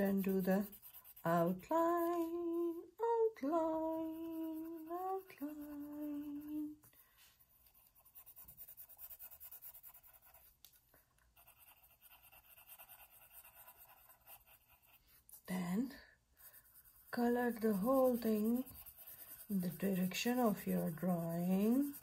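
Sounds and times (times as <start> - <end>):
colored pencil scratching on paper: 0.0 - 2.9, 3.5 - 22.0
person humming: 1.7 - 6.8.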